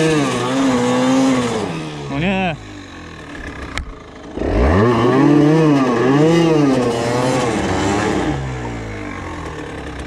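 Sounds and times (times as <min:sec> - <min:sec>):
two-stroke engine revving: 0:00.0 - 0:10.0.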